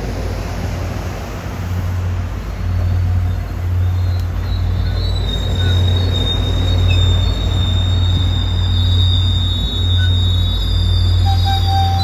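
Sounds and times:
train wheels rumbling on rails: 0.0 - 12.0
high wheel squeal: 2.4 - 12.0.

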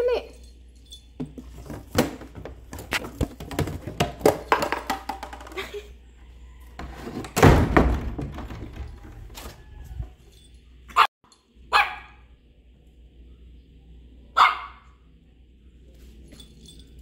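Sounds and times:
thuds and scuffing on tile floor: 1.2 - 5.4
loud thump: 7.4 - 9.0.

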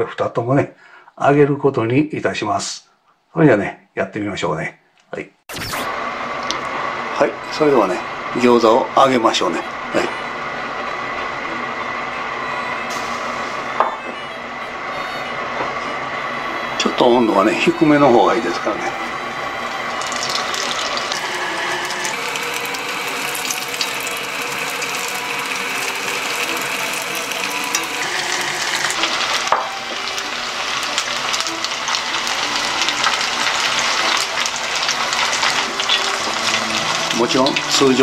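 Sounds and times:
dumplings sizzling in oil: 12.8 - 14.0, 19.0 - 38.0.

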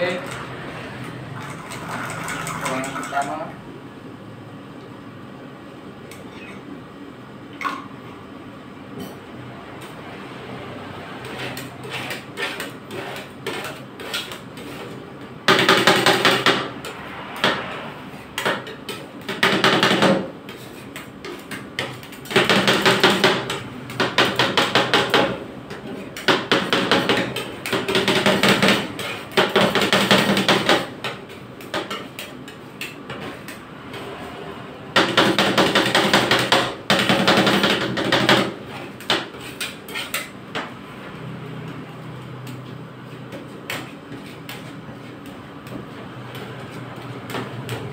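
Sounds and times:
metal spatulas chopping on steel pan: 11.2 - 16.7, 18.4 - 33.6, 34.9 - 40.7.

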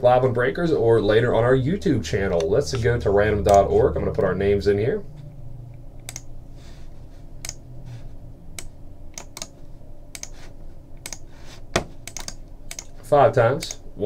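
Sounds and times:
keyboard and mouse clicks: 6.0 - 6.3, 8.6 - 10.4, 11.0 - 13.0, 13.6 - 13.8.

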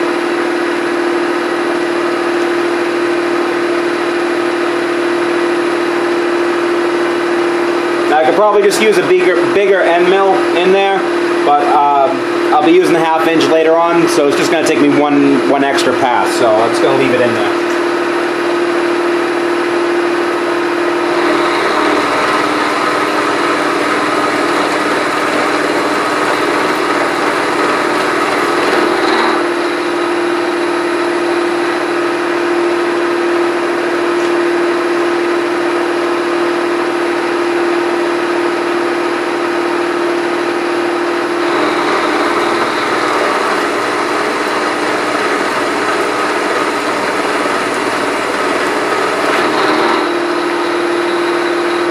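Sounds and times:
milling machine cutting metal: 20.7 - 31.8, 41.3 - 51.9.

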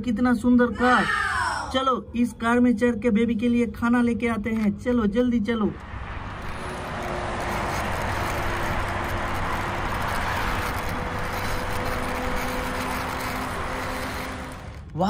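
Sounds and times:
toy wheels rolling on stone floor: 5.8 - 15.0.

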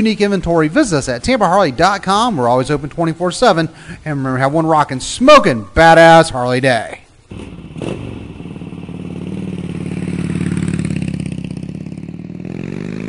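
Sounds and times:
motorcycle engine running: 7.3 - 13.0.

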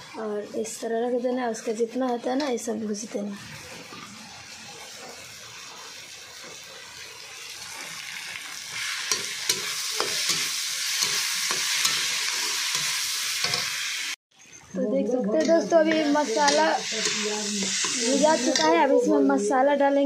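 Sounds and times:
vegetables sizzling in pan: 0.0 - 14.2, 15.5 - 19.5
metal spoon scraping pan: 15.7 - 19.1.

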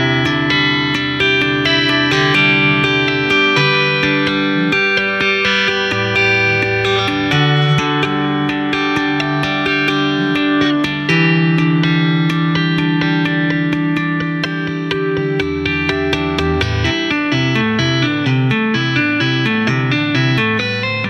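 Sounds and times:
tapped electric guitar notes: 0.0 - 21.0.

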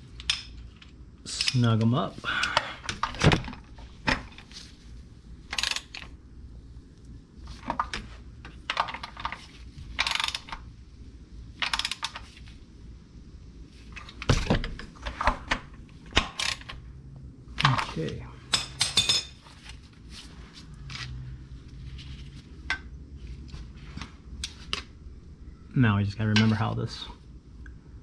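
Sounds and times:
hand ratchet clicking: 5.5 - 6.0, 10.0 - 10.5, 11.6 - 12.2.

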